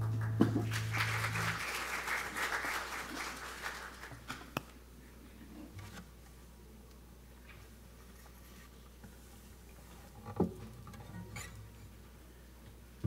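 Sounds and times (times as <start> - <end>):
congregation applauding: 0.0 - 4.4.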